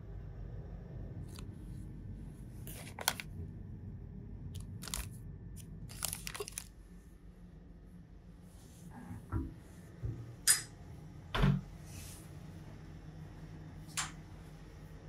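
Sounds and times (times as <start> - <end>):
plastic packets crinkling: 2.7 - 3.3, 4.6 - 6.8.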